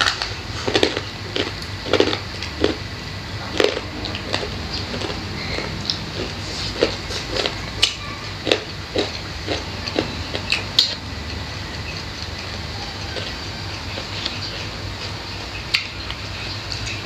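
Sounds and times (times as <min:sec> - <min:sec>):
chewing and lip smacks: 0:03.5 - 0:17.0.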